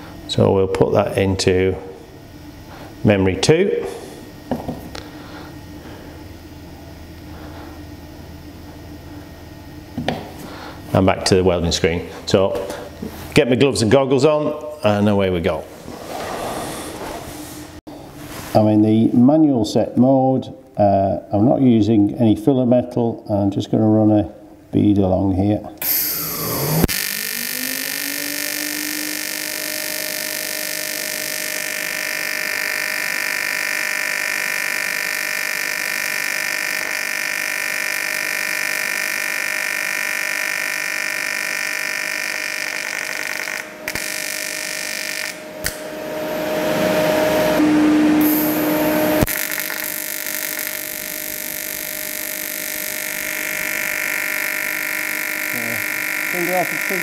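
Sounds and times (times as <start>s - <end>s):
welding arc buzzing: 25.8s - 47.6s, 48.2s - 57.0s.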